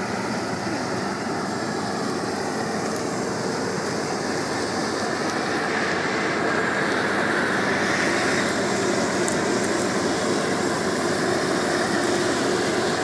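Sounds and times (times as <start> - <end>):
combine harvester running: 0.0 - 13.0.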